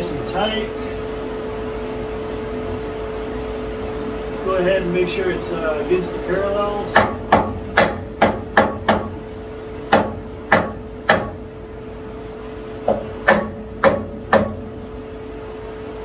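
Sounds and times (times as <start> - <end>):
steady machine hum: 0.0 - 16.0
hammer tapping on metal: 6.9 - 9.2, 9.9 - 11.4, 12.8 - 14.7.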